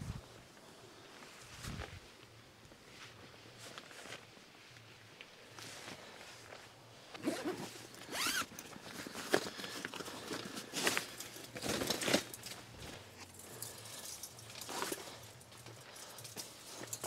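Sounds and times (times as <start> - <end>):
fabric rustling: 2.8 - 16.9
zipper being pulled open: 7.2 - 8.5.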